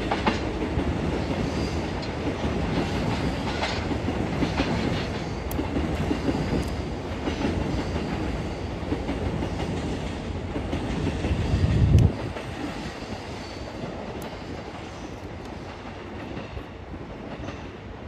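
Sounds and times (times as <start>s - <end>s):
train wheels clacking over rail joints: 0.0s - 17.8s.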